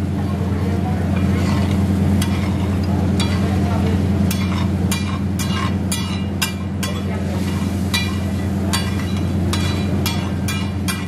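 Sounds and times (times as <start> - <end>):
steady low hum: 0.0 - 11.0
metal spatula scraping iron griddle: 1.1 - 3.7, 4.3 - 11.0.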